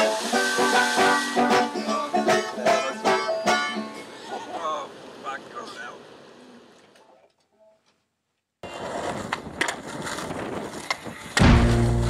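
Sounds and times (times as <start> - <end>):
skateboard wheels rolling on concrete: 0.0 - 2.7, 8.6 - 12.0
skateboard clacks: 8.7 - 12.0.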